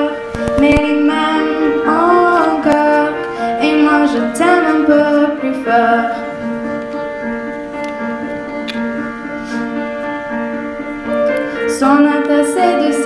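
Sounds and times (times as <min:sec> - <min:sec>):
girl singing: 0:00.0 - 0:07.2, 0:11.6 - 0:13.0
grand piano accompaniment: 0:00.0 - 0:13.0.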